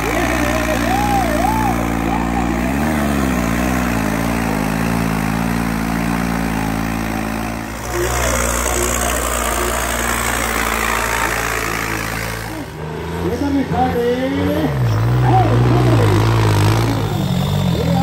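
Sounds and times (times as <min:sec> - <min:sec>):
tractor engine running: 0:00.0 - 0:18.0.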